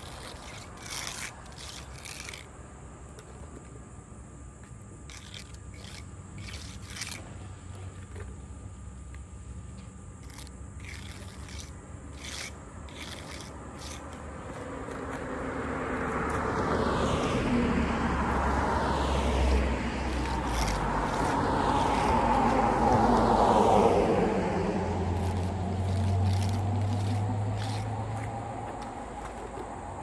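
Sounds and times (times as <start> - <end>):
cars passing on road: 0.0 - 30.0
short clicks and scrapes: 25.2 - 29.8.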